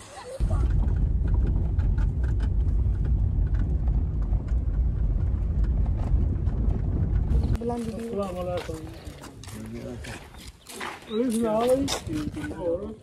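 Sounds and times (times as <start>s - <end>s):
tyres and engine rumble: 0.3s - 10.6s.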